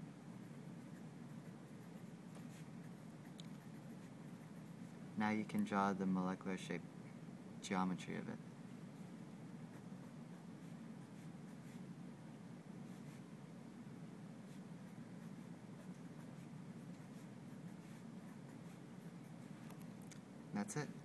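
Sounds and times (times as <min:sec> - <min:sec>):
low room hum: 0:00.0 - 0:21.0
pen scratching on paper: 0:00.4 - 0:04.9, 0:14.5 - 0:19.8.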